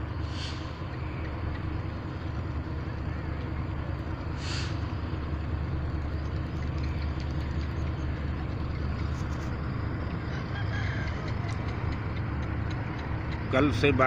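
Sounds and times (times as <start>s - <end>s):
low engine rumble: 0.0s - 14.0s
faint ticks: 11.0s - 14.0s.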